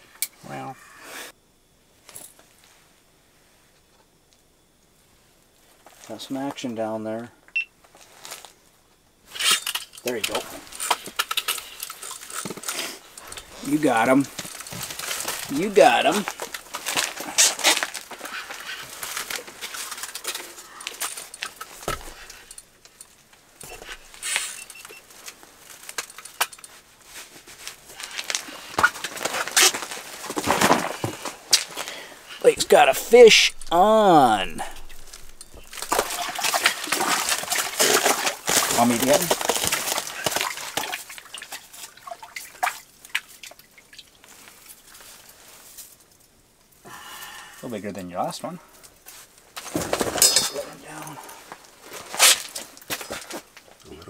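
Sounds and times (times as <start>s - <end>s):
water dripping: 32.7s - 37.8s
water splashing: 32.7s - 38.6s.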